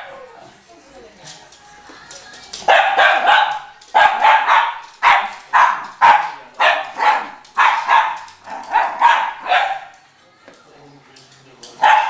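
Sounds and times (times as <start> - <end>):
dog barking: 2.7 - 10.0, 11.8 - 12.0.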